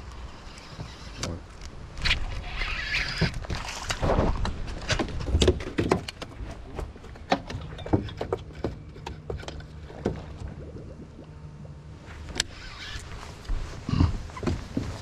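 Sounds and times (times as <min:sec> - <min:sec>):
knocks and clicks on boat: 0:03.2 - 0:10.6, 0:13.4 - 0:15.0.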